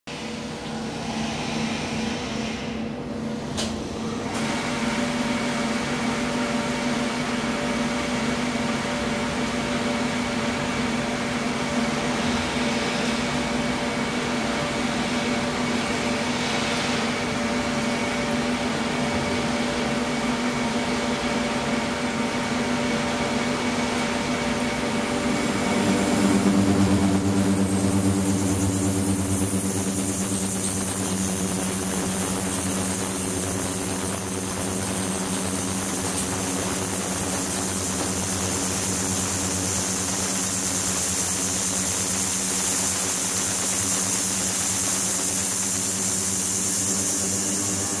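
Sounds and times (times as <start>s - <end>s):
ultrasonic tank humming: 23.8s - 48.0s
high thin whine: 23.9s - 48.0s.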